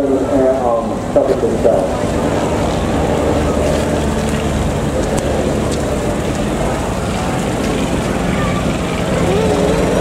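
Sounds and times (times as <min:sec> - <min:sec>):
propeller aircraft engines droning: 0:00.0 - 0:10.0.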